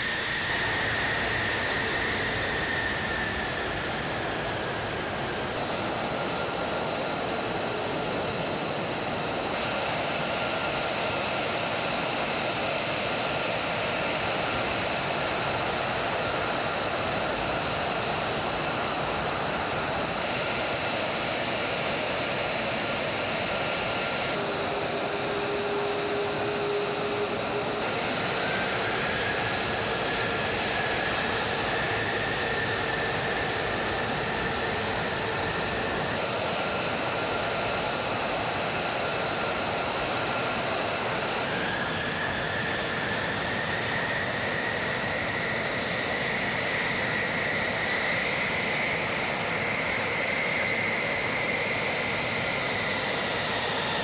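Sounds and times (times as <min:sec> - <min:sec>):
jet engine rushing with high whine: 0:00.0 - 0:54.0
whine rising in pitch: 0:13.6 - 0:37.6.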